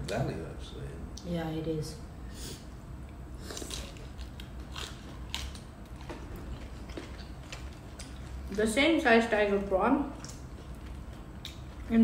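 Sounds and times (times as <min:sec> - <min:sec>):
chewing: 0:03.4 - 0:08.6, 0:10.1 - 0:12.0.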